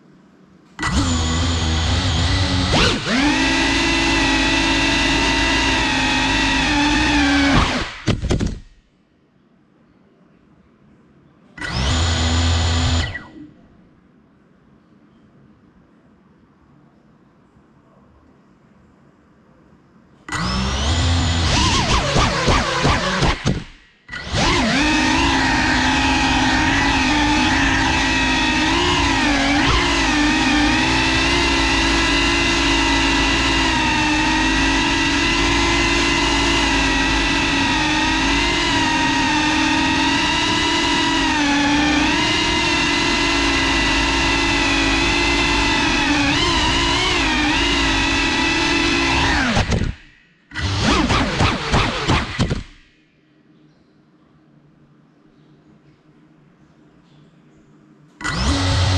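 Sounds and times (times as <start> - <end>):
quadcopter motors whining: 0.8 - 8.6, 11.6 - 13.4, 20.3 - 52.8, 58.2 - 58.9.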